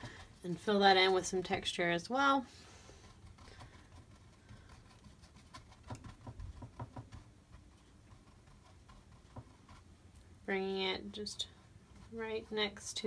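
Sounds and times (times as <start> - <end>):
paintbrush tapping on canvas: 5.8 - 7.3.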